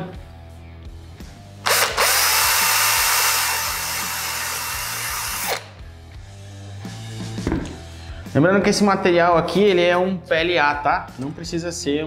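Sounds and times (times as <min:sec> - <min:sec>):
cordless drill whining: 0:01.6 - 0:05.7.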